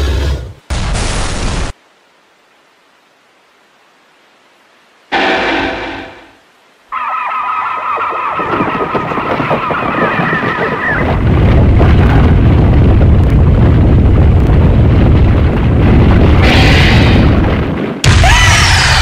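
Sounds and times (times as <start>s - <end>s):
deep rumble: 8.8s - 19.0s.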